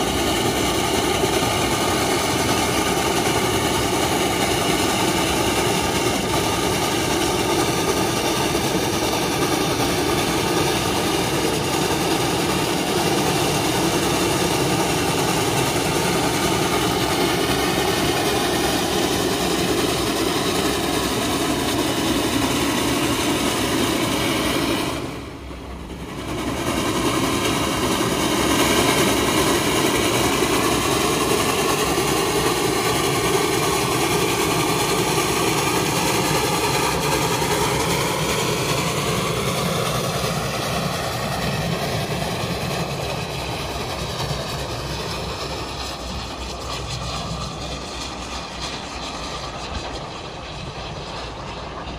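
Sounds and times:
steam locomotive running: 0.0s - 51.9s.

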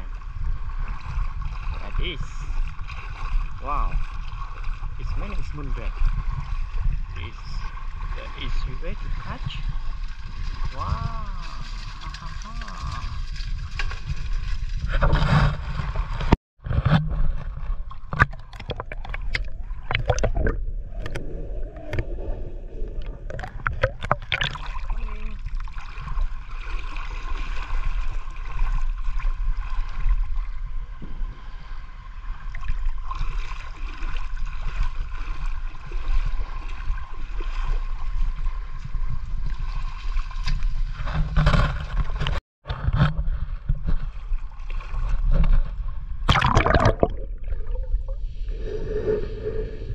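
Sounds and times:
water gurgling underwater: 9.8s - 26.6s, 46.0s - 49.9s.

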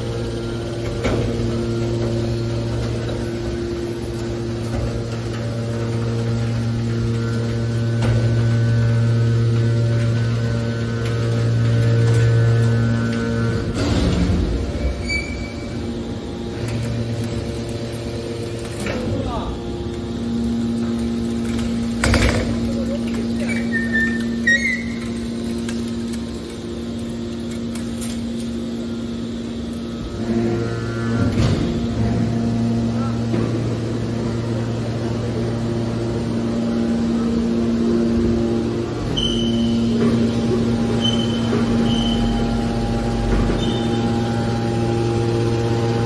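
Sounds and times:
machine hum: 0.0s - 46.0s
high squeal: 14.8s - 15.8s, 23.4s - 25.2s, 39.1s - 39.9s, 40.9s - 42.7s, 43.6s - 44.3s.

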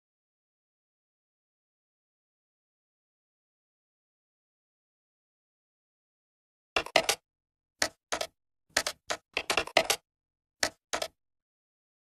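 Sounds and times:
keyboard keystroke clicks: 6.8s - 7.2s, 7.8s - 10.0s, 10.6s - 11.2s.

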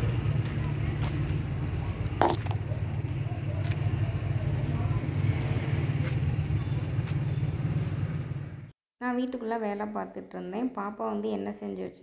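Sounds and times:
faint voices: 0.0s - 5.6s.

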